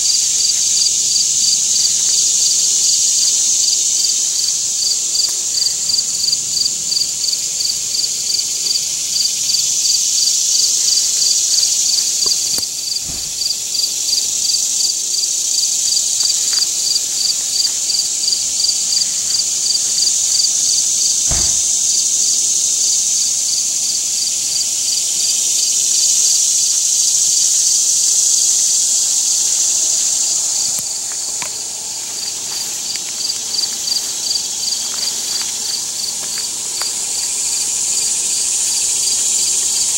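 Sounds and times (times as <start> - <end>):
insects chirping: 0.0 - 39.9.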